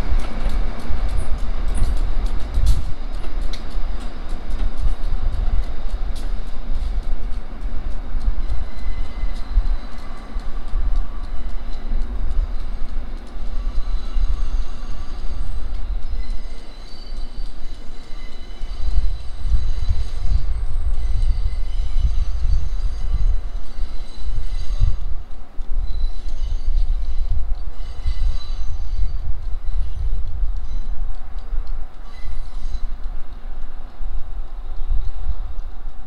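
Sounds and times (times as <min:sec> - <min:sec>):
subway train rumbling on track: 0:00.0 - 0:36.0
wheels squealing: 0:13.5 - 0:25.0, 0:25.8 - 0:31.0.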